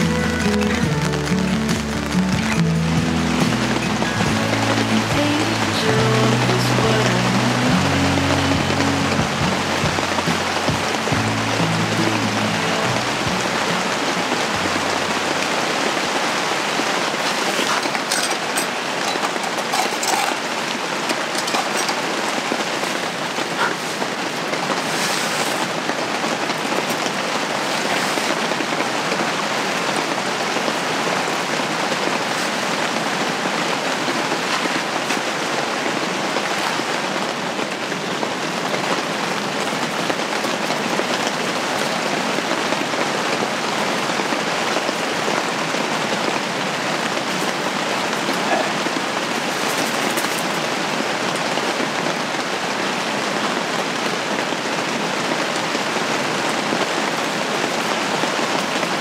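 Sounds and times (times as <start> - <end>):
louder raindrops: 0.0 - 59.0
rain on tent fabric: 0.0 - 59.0.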